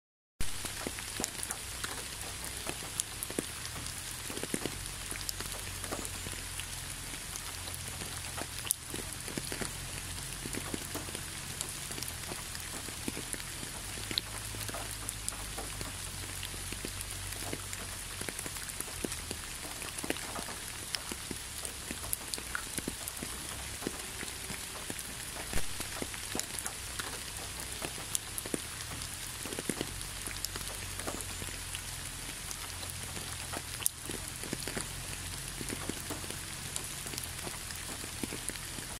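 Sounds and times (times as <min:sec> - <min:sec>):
rain falling on asphalt road: 0:00.4 - 0:38.9.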